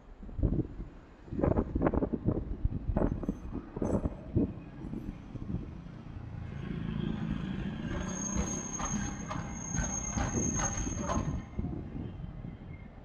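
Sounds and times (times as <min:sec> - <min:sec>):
streetcar wheels rumbling: 0:00.0 - 0:13.0
high wheel squeal: 0:07.0 - 0:11.7
wheels clacking over rail joints: 0:07.1 - 0:11.6.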